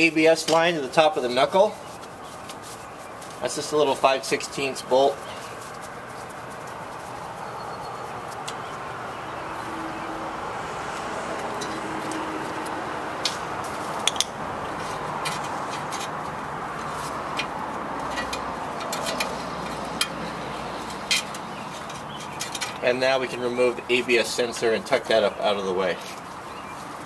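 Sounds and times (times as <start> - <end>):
hand tools clicking on metal: 17.3 - 22.8.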